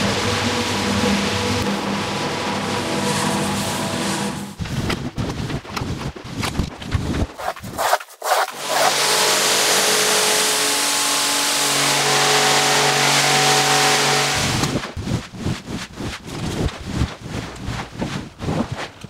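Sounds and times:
scraping and rustling strokes: 0:03.0 - 0:09.2, 0:14.4 - 0:19.0
motor hum: 0:07.0 - 0:19.0.

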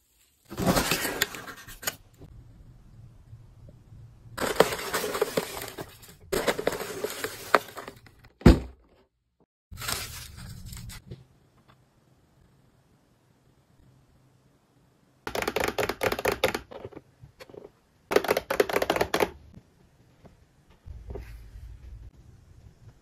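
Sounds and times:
packaging paper rustling: 0:04.4 - 0:08.2, 0:09.7 - 0:11.1
thud: 0:08.4 - 0:08.8.

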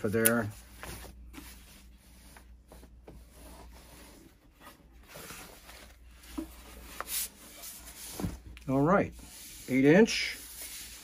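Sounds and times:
sheet rustling: 0:00.0 - 0:11.0.

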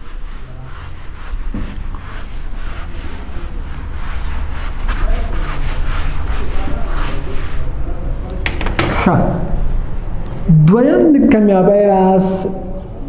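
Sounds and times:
eraser rubbing on whiteboard: 0:00.0 - 0:07.7.

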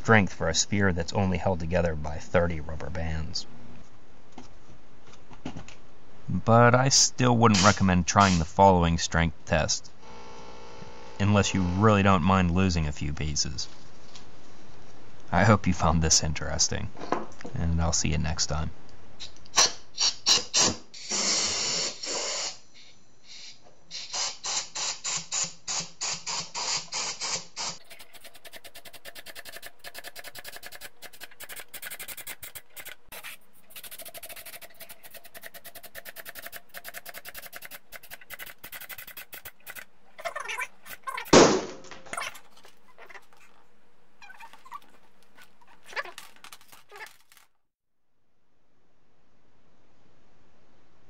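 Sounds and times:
compressed air hissing: 0:20.0 - 0:27.8
wooden pieces clicking: 0:27.8 - 0:33.1, 0:33.7 - 0:41.4
wooden ball bursting thump: 0:41.3 - 0:42.0.

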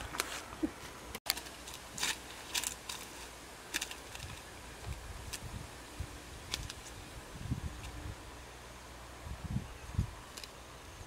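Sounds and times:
footsteps crunching on dry stubble: 0:01.3 - 0:04.5.

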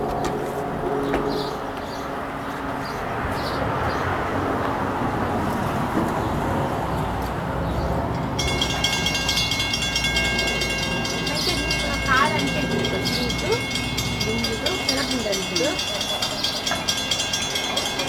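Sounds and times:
train rumbling on tracks: 0:00.0 - 0:18.0.

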